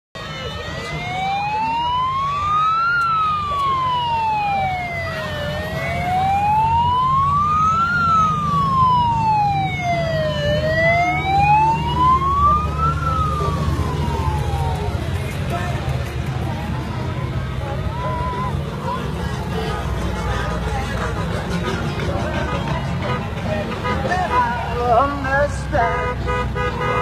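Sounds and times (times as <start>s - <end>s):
emergency siren wailing: 0.2s - 15.9s, 16.5s - 20.3s
motorcycle engines rumbling: 0.2s - 27.0s.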